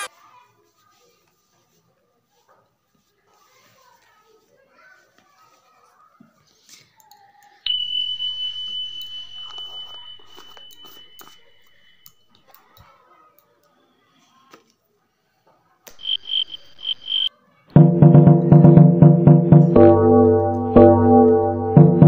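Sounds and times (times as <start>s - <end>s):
high beeps: 7.7s - 12.3s, 15.9s - 17.3s
high electronic tone: 15.9s - 17.3s
keyboard music: 18.0s - 22.0s.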